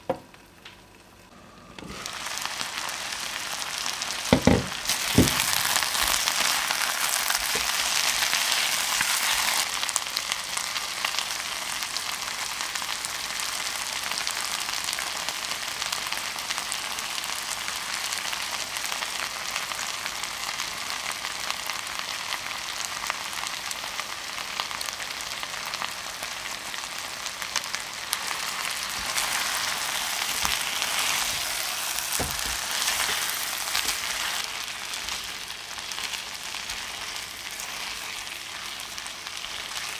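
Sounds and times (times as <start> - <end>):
meat sizzling in oil: 1.9 - 39.9
spatula knocking on pan: 4.3 - 5.5.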